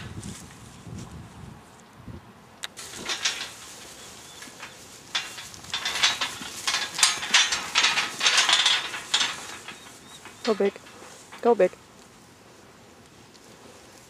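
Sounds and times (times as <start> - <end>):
metal panels rattling and clanking: 2.8 - 11.7.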